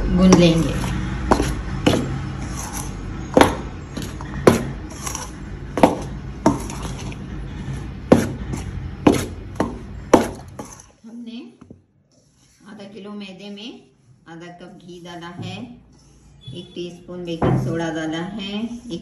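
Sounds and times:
spatula scraping through flour: 0.2 - 11.1, 12.1 - 15.3.

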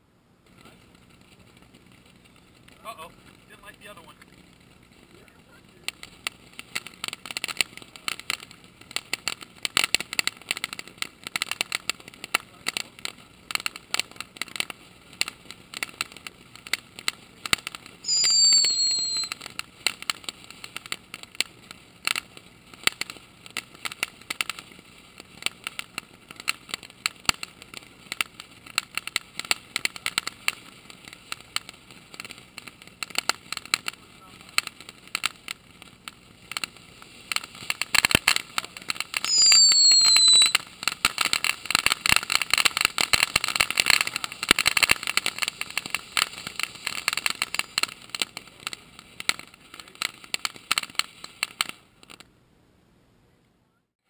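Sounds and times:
firework fountain crackling: 0.0 - 52.4
high firework whistle: 18.0 - 19.5, 39.1 - 47.8.

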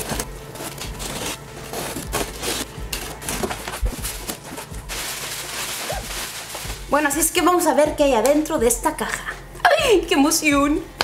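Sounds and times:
box cutter slitting packing tape: 0.0 - 4.4
packing paper rustling: 0.0 - 7.4.

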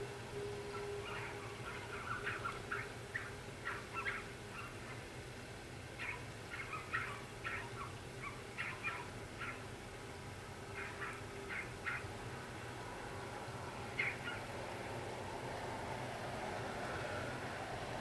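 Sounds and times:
rail cars rumbling: 12.2 - 18.0.

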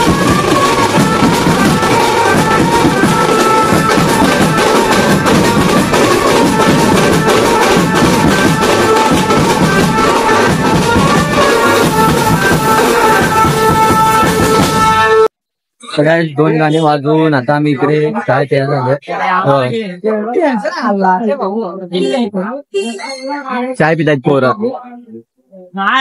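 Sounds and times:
banjo band playing: 0.0 - 15.3
cymbals: 0.0 - 15.3
mallet-struck drums beating: 0.0 - 15.3.

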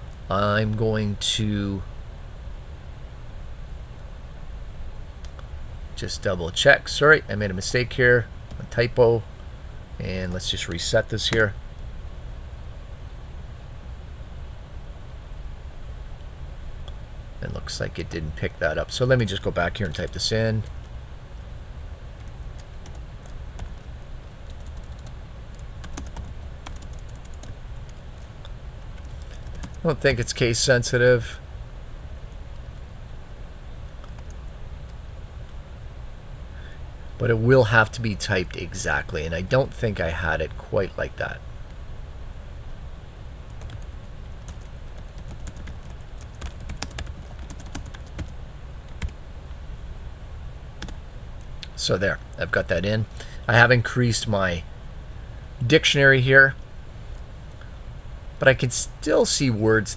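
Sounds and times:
low steady hum: 0.0 - 59.9
keyboard typing: 22.2 - 29.8, 34.0 - 35.0, 43.5 - 49.2.

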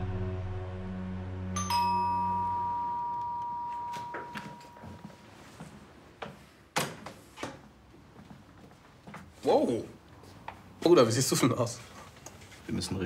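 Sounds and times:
soundtrack music: 0.0 - 2.6
two-tone doorbell chime: 1.6 - 5.4
footsteps: 3.8 - 9.6.

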